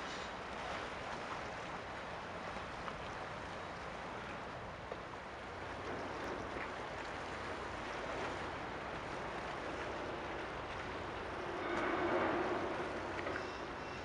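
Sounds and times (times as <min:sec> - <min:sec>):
water at the shoreline: 0:00.0 - 0:14.0
wind: 0:00.0 - 0:14.0
low rumbling hum: 0:05.6 - 0:14.0.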